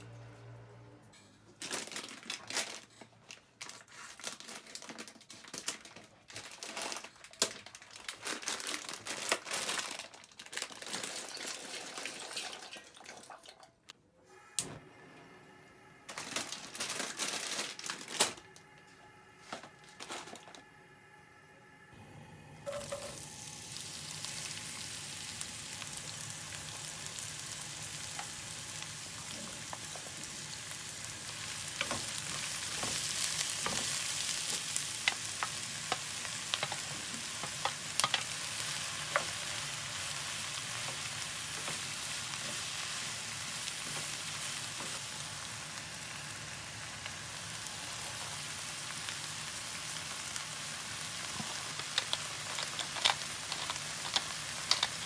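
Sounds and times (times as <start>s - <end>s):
vegetables sizzling in oil: 22.7s - 55.0s.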